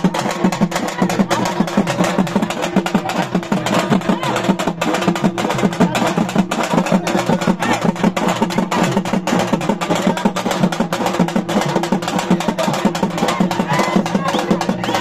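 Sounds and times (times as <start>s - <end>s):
fast drumming: 0.0s - 15.0s.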